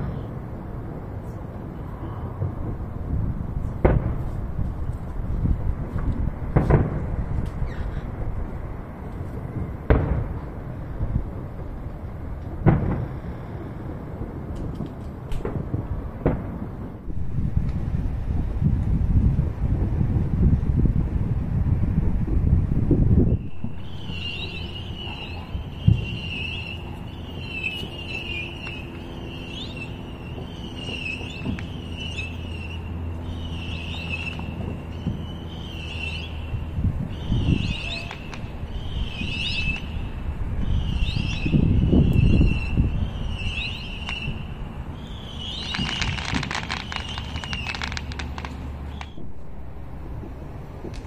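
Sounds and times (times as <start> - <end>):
fireworks crackling: 0.0 - 51.0
steady low rumble: 0.0 - 51.0
high whistling tone: 23.2 - 49.5
crickets chirping: 23.4 - 36.6.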